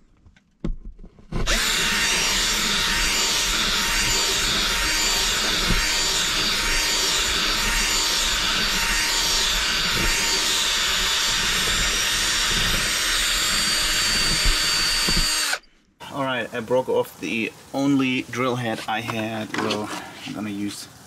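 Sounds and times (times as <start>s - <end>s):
cordless drill grinding: 1.3s - 15.7s.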